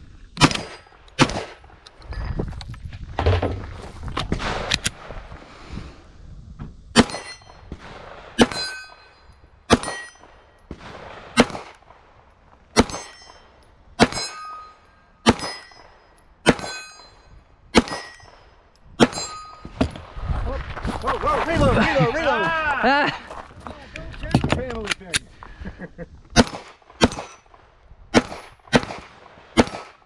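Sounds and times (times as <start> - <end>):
pistol shots: 0.4 - 1.6, 9.7 - 11.8, 12.8 - 13.4, 15.2 - 16.8, 17.8 - 18.4, 26.4 - 27.5, 28.1 - 30.0
steel plate target clanging: 7.0 - 7.7, 8.4 - 10.5, 12.8 - 19.9.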